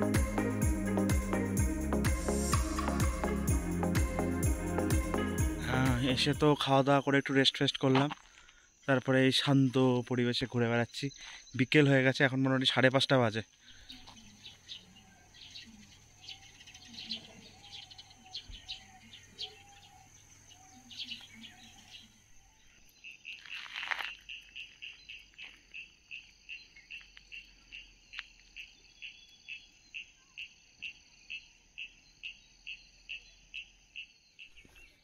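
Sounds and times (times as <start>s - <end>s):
insect chirping: 4.2s - 35.0s
bird chirps: 13.4s - 35.0s
insect buzz: 13.5s - 35.0s.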